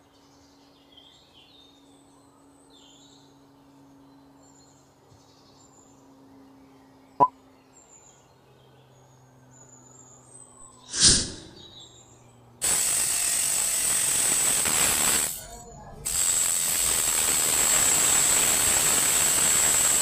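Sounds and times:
faint birds chirping: 0.0 - 12.6
low hum: 10.5 - 12.2
rotary tool grinding metal: 12.6 - 20.0.

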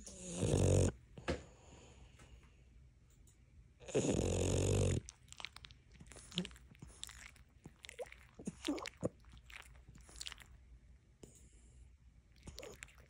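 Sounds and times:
dog smacking its lips: 5.0 - 10.6, 12.4 - 13.0.

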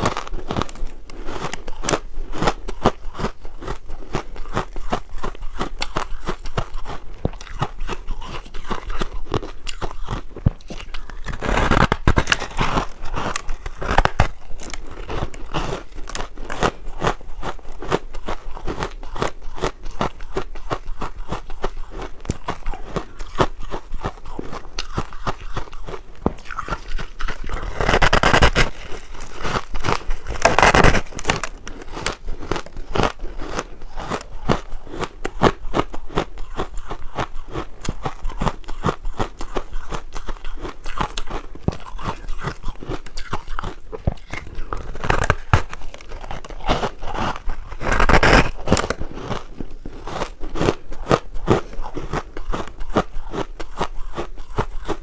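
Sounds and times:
chewing crushed ice: 0.0 - 55.0.

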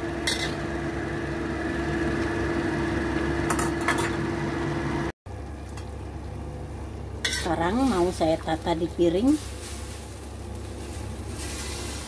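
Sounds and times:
low kitchen hum: 0.0 - 12.0.

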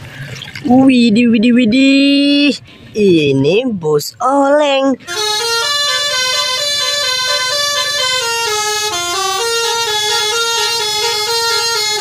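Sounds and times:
musical air horn playing a tune: 5.1 - 12.0.

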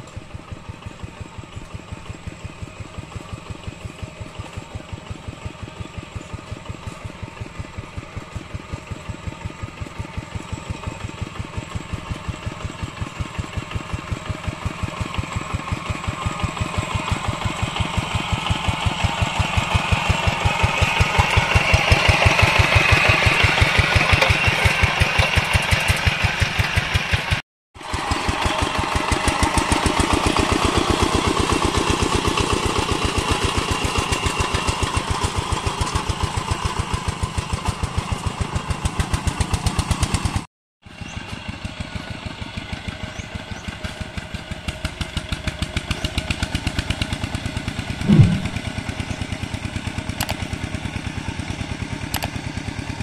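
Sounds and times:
diesel tractor engine chugging: 0.0 - 40.4, 41.0 - 53.0
short loud falling tone: 48.0 - 48.6.

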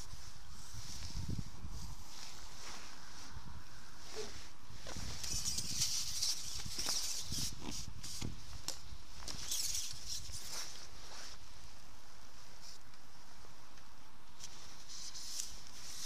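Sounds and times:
wind rumble on microphone: 0.0 - 10.4
fishing pole rustling and clicking: 4.8 - 11.0.

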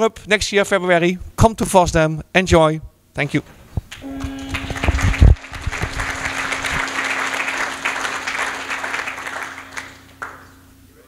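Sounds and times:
steady low hum: 1.1 - 11.0
audience applauding: 3.9 - 10.6.

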